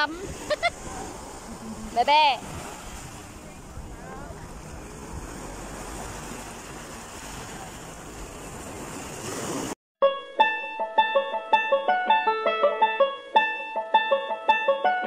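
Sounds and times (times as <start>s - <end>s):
wind on microphone: 0.0s - 9.7s
small waves breaking on beach: 0.0s - 9.8s
plucked string music: 10.0s - 15.0s.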